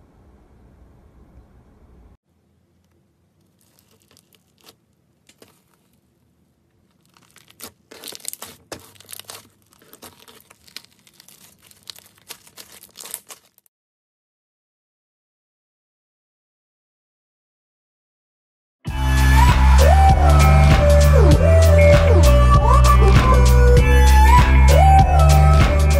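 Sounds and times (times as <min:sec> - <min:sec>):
slime crackling and tearing: 0:03.4 - 0:06.1, 0:06.7 - 0:13.7.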